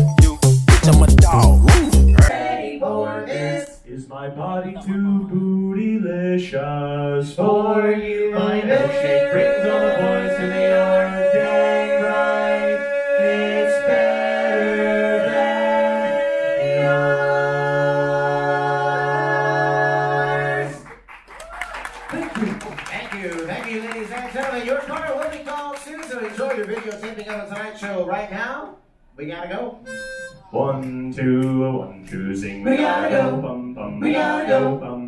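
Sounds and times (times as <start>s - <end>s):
a cappella group singing harmony: 1.3s - 21.0s, 30.5s - 35.0s.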